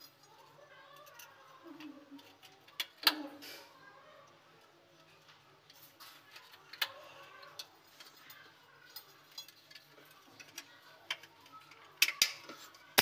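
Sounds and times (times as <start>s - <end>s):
plastic parts clicking: 9.3s - 13.0s.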